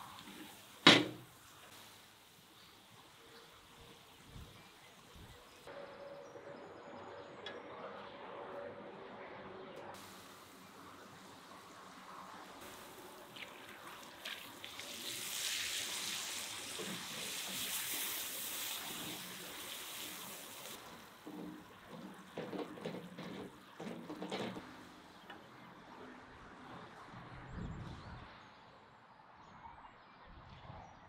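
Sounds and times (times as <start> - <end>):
sauce hissing in frying pan: 10.0 - 21.2.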